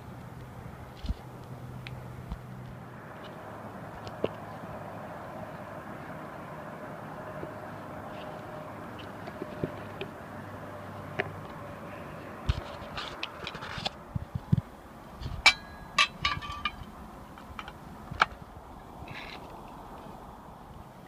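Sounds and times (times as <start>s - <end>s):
metal pots and lids clinking: 15.5s - 16.8s.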